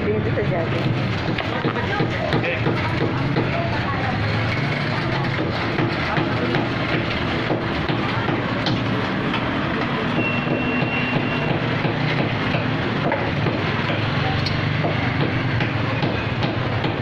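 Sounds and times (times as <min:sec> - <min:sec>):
vehicle engine running: 0:00.0 - 0:10.2
street traffic noise: 0:00.0 - 0:17.0.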